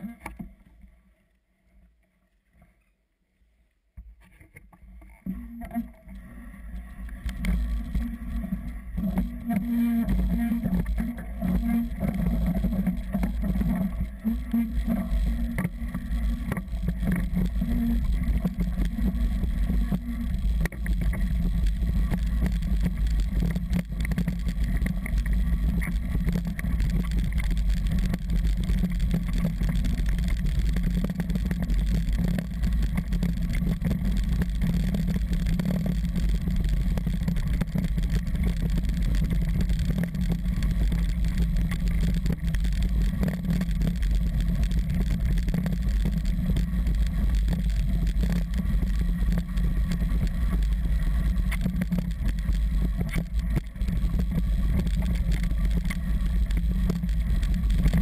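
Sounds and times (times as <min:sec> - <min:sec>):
bike tyres rumbling on gravel: 0:06.6 - 0:58.0.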